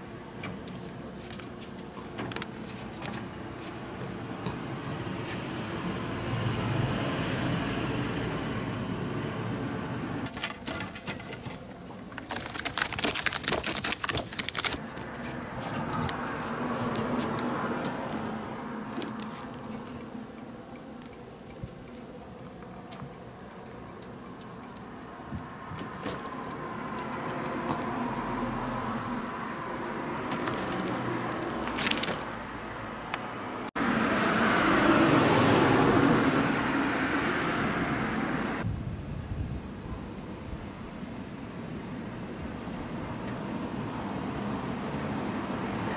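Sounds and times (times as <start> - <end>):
traffic background: 0.0 - 45.9
car passing: 4.7 - 10.3, 14.8 - 20.3, 25.5 - 38.6
cat scraping wire mesh: 10.2 - 19.9.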